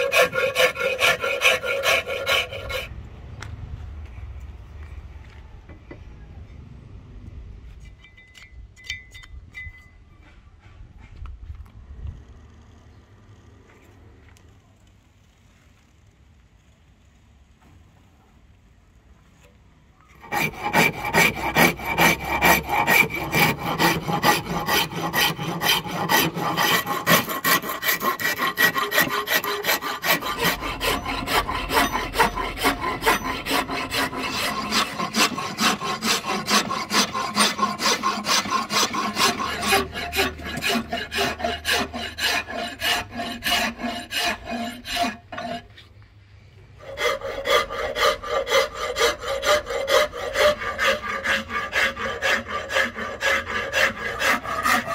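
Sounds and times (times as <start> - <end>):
hand file rasping on wood: 0.0 - 2.9, 20.2 - 45.7, 46.8 - 54.9.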